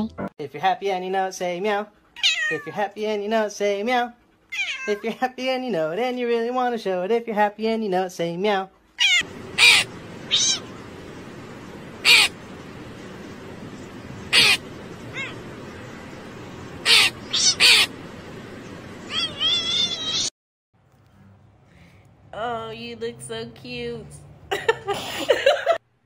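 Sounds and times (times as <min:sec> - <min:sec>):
cat chirping: 0:02.2 - 0:02.7, 0:04.5 - 0:05.0, 0:09.0 - 0:12.5, 0:13.2 - 0:18.0, 0:19.0 - 0:20.3
cat meowing: 0:02.2 - 0:02.7, 0:04.5 - 0:05.0, 0:09.0 - 0:10.8, 0:12.0 - 0:12.3, 0:14.3 - 0:15.4, 0:16.8 - 0:17.9, 0:19.0 - 0:20.3
background hiss: 0:09.2 - 0:20.3.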